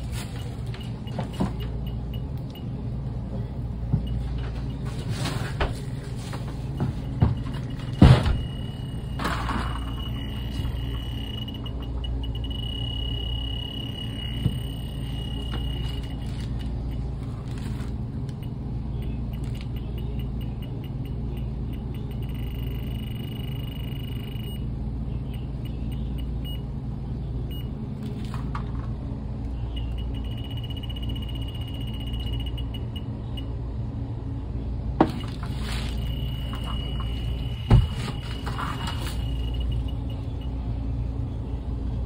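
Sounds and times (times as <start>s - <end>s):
equipment humming: 0.0s - 42.0s
leak detector high-pitched alarm: 6.7s - 17.1s, 18.4s - 24.7s, 29.7s - 33.6s, 35.1s - 40.6s.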